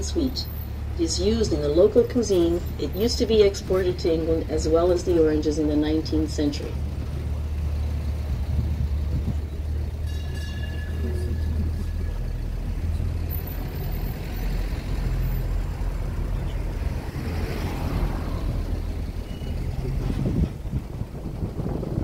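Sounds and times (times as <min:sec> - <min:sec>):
tyre and road noise: 0:00.0 - 0:22.0
vehicle engine low drone: 0:00.0 - 0:22.0
faint high squeal: 0:19.2 - 0:19.8.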